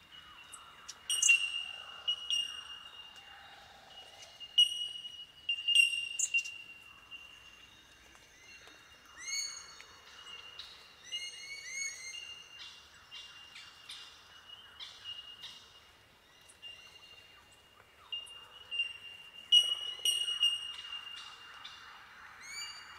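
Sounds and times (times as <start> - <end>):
bellbirds ringing calls: 0.4 - 3.3, 4.0 - 8.6, 18.1 - 21.4.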